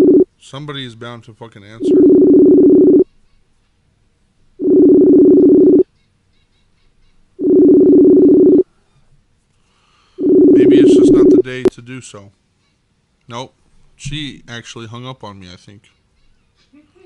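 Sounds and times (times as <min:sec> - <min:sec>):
telephone ringback tone: 0:00.0 - 0:00.2, 0:01.8 - 0:03.0, 0:04.6 - 0:05.8, 0:07.4 - 0:08.6, 0:10.2 - 0:11.4.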